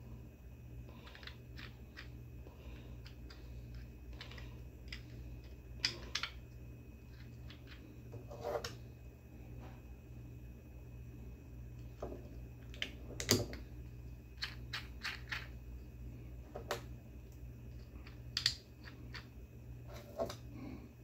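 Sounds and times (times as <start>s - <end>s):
low steady hum: 0.0s - 21.0s
plastic parts clicking: 18.0s - 19.3s.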